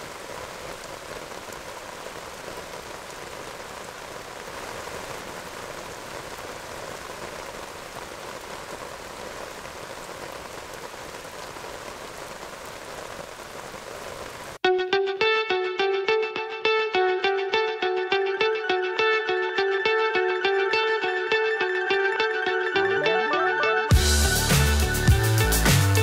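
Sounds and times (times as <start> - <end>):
steady rain falling: 0.0 - 14.6, 23.9 - 26.0
music: 14.6 - 26.0.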